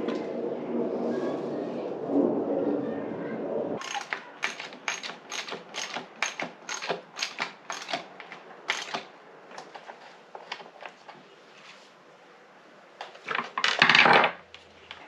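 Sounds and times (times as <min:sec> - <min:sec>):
ratchet wrench clicking: 0:03.8 - 0:08.0, 0:08.7 - 0:09.0.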